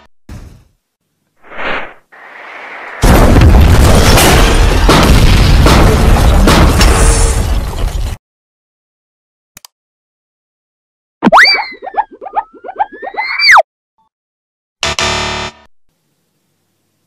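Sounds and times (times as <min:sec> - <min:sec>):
whoosh: 0:01.4 - 0:03.1
loud explosion with rumbling: 0:03.0 - 0:08.2.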